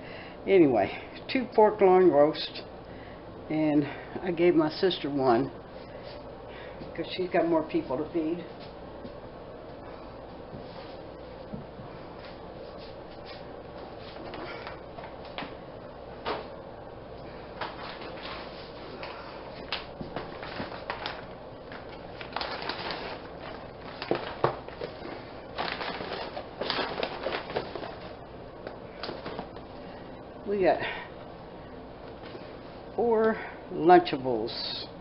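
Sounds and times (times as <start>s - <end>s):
plastic bag rustling: 17.6s - 28.2s, 29.0s - 29.6s.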